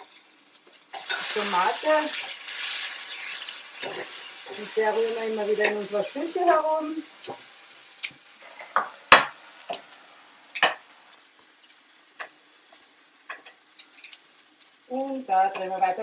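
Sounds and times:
faint high chirp: 0:00.0 - 0:01.0, 0:09.3 - 0:16.0
metal tongs clicking on grill: 0:13.3 - 0:15.8.

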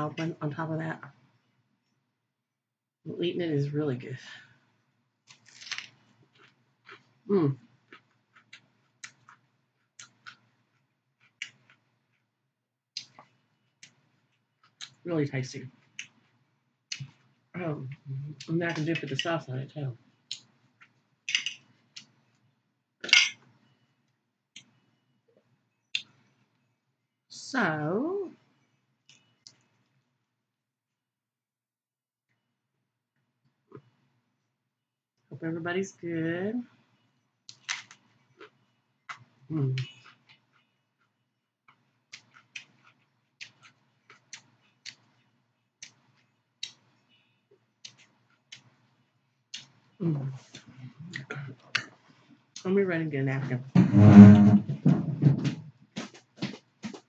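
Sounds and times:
chewing crunchy vegetables: 0:05.3 - 0:12.3, 0:37.5 - 0:46.9, 0:47.8 - 0:48.8.

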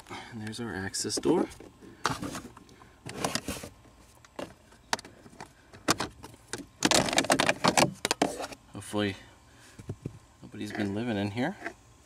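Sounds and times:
plastic cover clicks and knocks: 0:05.8 - 0:08.3.

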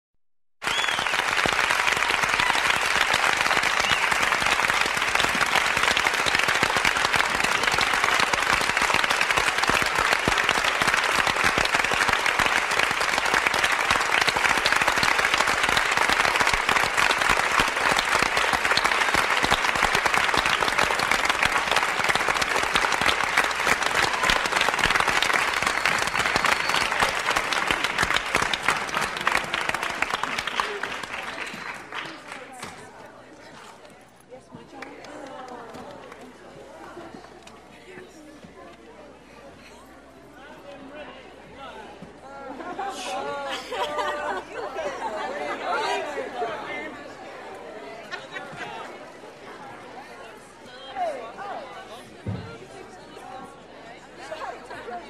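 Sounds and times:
crowd applauding in a hall: 0:00.6 - 0:33.0.

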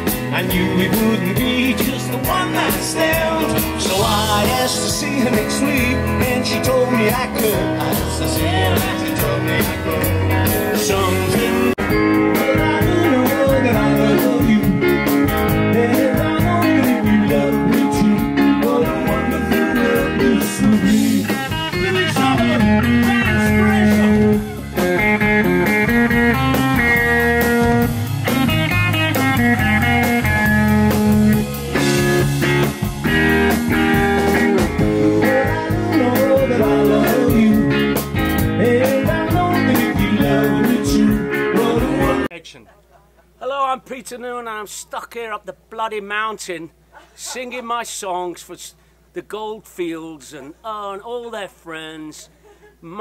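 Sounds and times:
electric guitar: 0:00.0 - 0:42.3
live rock band playing: 0:00.0 - 0:42.3.

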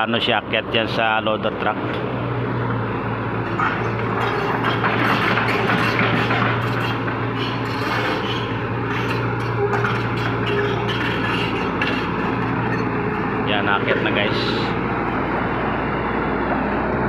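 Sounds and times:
excavator diesel engine running: 0:00.0 - 0:17.0
metallic track clanks: 0:03.4 - 0:14.8.

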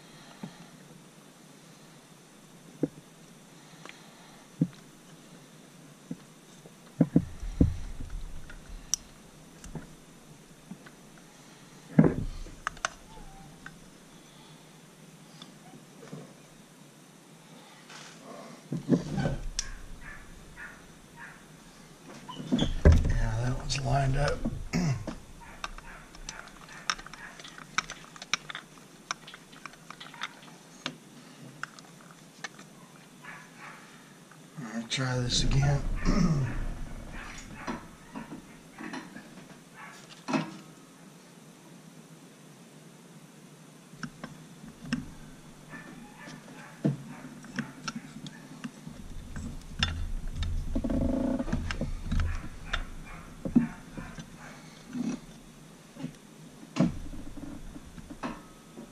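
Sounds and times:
brief low voice-like sound: 0:35.2 - 0:37.4.

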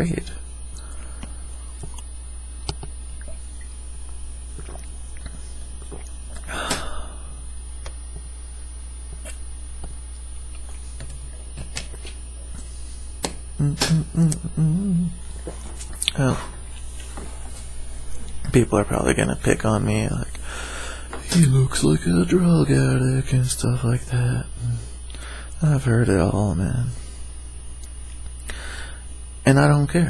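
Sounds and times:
low electrical hum: 0:00.0 - 0:30.0
person swallowing: 0:00.7 - 0:08.3, 0:09.1 - 0:09.5, 0:13.6 - 0:16.9
short low voiced sounds: 0:13.6 - 0:15.3, 0:21.3 - 0:24.9.

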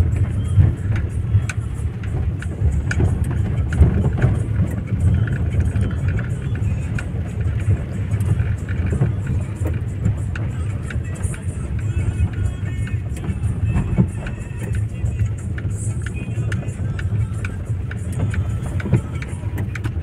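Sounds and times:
engine and tyre rumble: 0:00.0 - 0:20.0
light ticks: 0:00.1 - 0:20.0.

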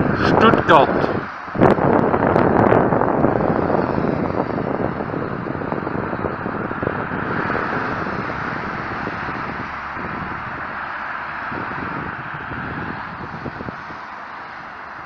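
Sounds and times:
road traffic rushing: 0:00.0 - 0:15.0
vehicle passing by: 0:00.0 - 0:15.0.

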